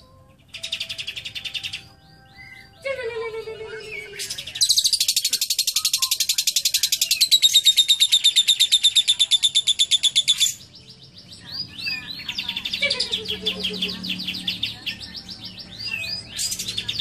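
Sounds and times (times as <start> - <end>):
lovebird chattering trill: 3.7 - 10.6.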